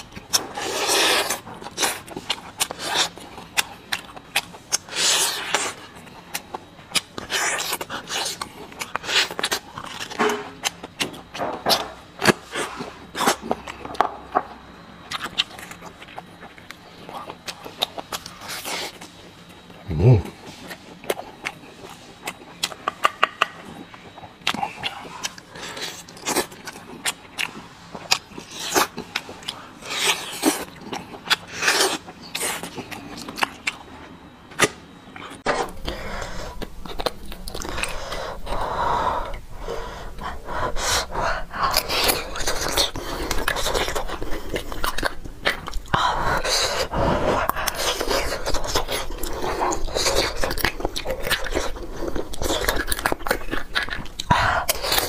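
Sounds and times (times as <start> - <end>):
wet sucking and chewing: 0.0 - 13.9, 15.0 - 55.0.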